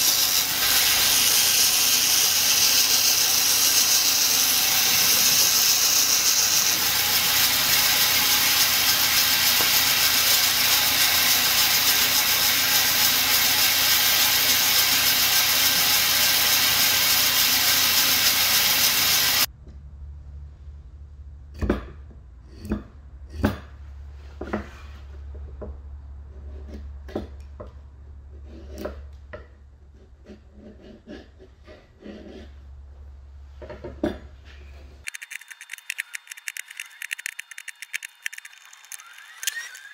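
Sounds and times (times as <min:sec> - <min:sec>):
band saw cutting plywood: 0:00.0 - 0:19.5, 0:35.0 - 0:39.9.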